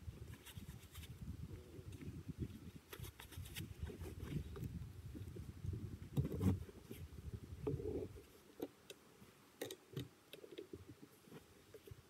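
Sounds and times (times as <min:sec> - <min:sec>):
wind rumble on microphone: 0:00.0 - 0:08.3.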